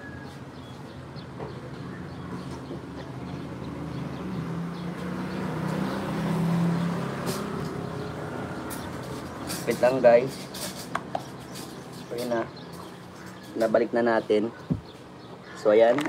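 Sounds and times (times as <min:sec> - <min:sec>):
vehicle engine passing by: 0:01.9 - 0:10.4.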